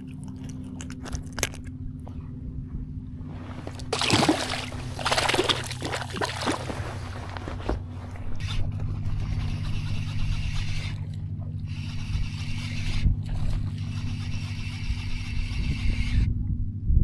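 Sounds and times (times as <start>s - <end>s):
steady low hum: 0.0s - 17.0s
water splashing and sloshing: 3.4s - 8.4s.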